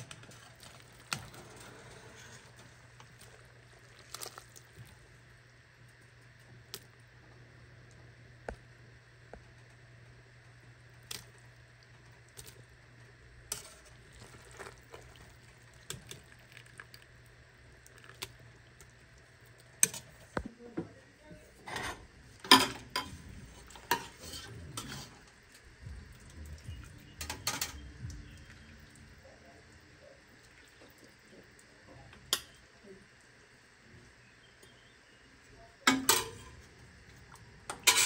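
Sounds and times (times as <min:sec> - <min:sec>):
metal utensil stirring in a pot: 0:13.5 - 0:15.1, 0:21.6 - 0:25.2, 0:37.7 - 0:38.0.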